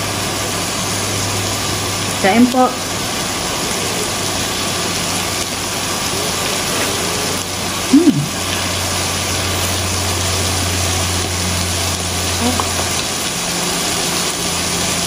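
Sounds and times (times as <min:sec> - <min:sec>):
even hiss: 0:00.1 - 0:15.0
person humming mm: 0:07.9 - 0:08.6.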